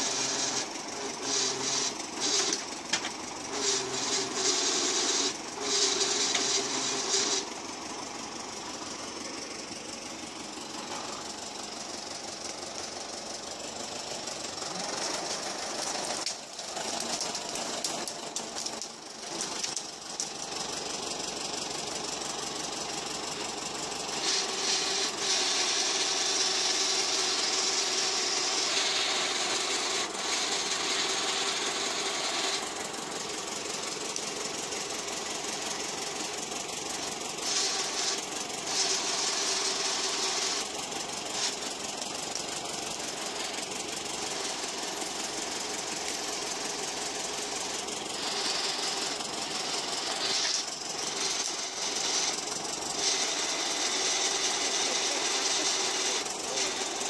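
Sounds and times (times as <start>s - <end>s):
hydraulic whine: 0.0s - 57.0s
tractor engine running: 0.0s - 57.0s.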